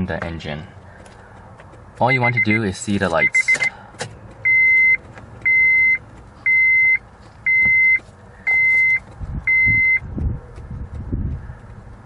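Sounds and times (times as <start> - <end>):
dashboard warning chime beeping: 2.0 - 3.8, 4.4 - 10.0
low thumps: 9.1 - 11.7.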